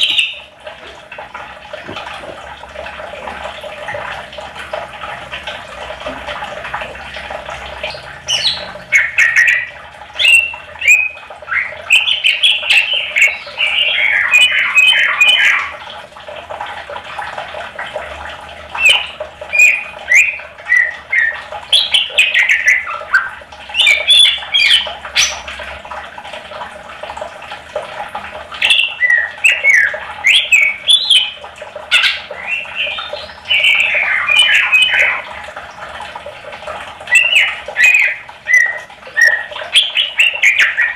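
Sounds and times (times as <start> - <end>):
bird singing chirps and whistles: 0.0 - 0.5, 7.9 - 15.7, 18.8 - 25.4, 28.6 - 35.2, 37.1 - 40.9.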